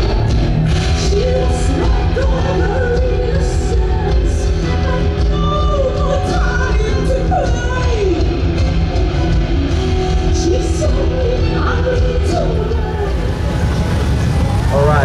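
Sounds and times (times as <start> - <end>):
woman singing: 0.0 - 13.5
electric guitar: 0.0 - 15.0
rock band playing: 0.0 - 15.0.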